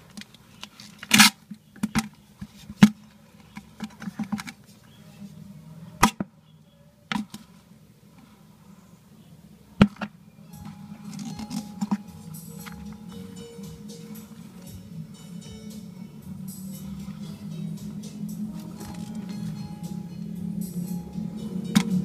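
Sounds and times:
faint low hum: 0.0s - 22.0s.

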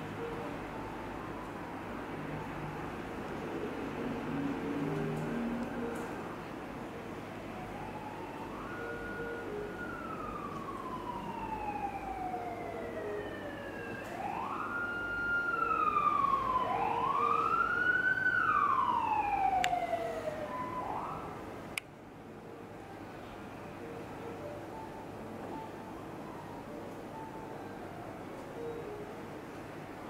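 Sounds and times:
emergency siren wailing: 0.0s - 6.2s, 7.4s - 21.7s
second siren wail: 7.5s - 21.6s.

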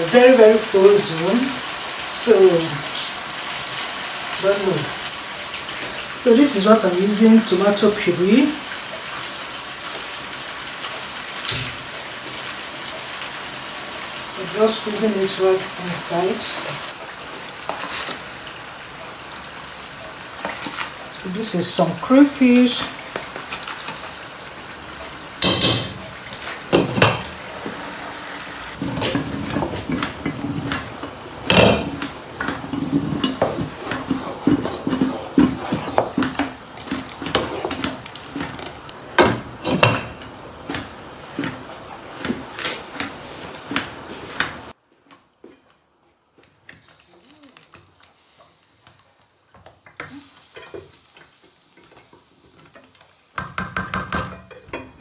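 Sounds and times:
wooden spoon stirring soup: 28.8s - 39.9s.

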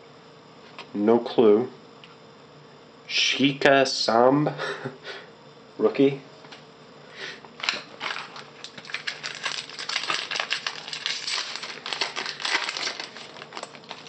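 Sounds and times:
foil wrapper crinkling: 7.6s - 14.0s.

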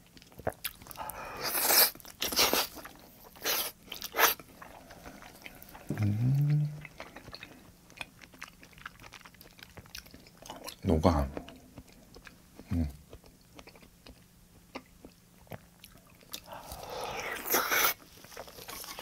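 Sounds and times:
soft chewing: 0.0s - 19.0s
person humming mmm: 5.6s - 7.0s.

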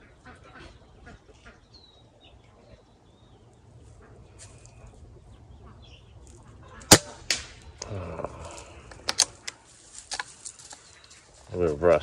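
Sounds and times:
air rifle shot: 6.9s - 7.6s
pellet hitting steel target: 6.9s - 7.6s.

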